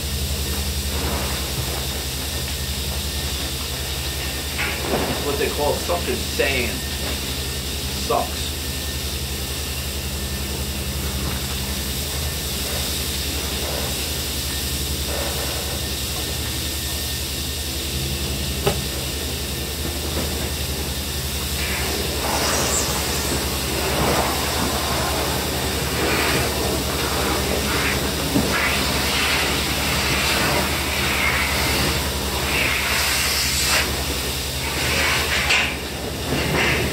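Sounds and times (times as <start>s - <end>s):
low machine hum: 0.0s - 36.9s
vacuum hose sucking up sand: 21.4s - 34.0s.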